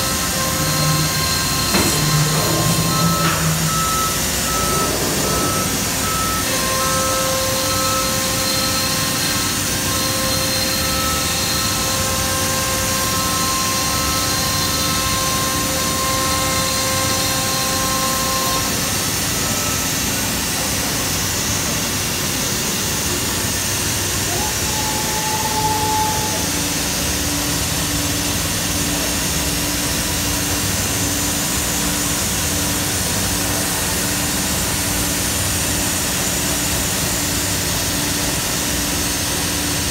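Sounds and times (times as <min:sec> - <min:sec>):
cnc router machine noise: 0:00.0 - 0:39.9
machine whines: 0:00.0 - 0:39.9.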